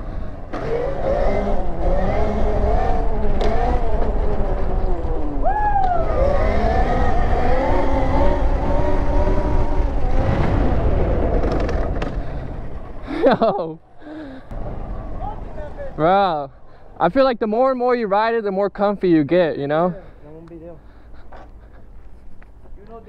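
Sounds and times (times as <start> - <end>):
electric motor whining: 0.6 - 10.9
wind rumble on microphone: 1.0 - 13.4.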